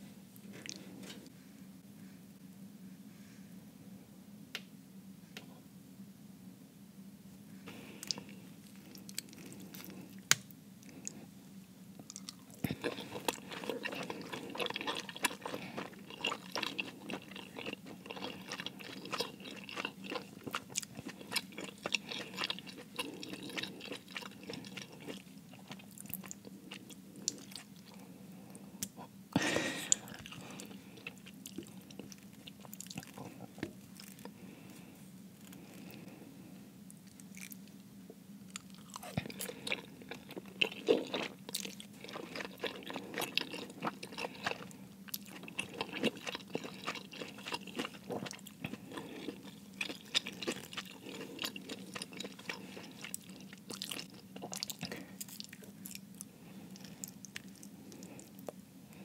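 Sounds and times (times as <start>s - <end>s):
close chewing with mouth clicks: 7.7s - 11.2s, 12.0s - 29.1s, 29.9s - 34.8s, 38.5s - 58.6s.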